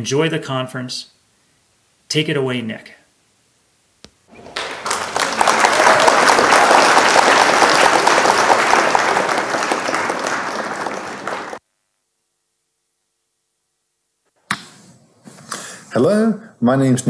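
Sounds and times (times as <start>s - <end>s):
applause: 4.3s - 11.6s.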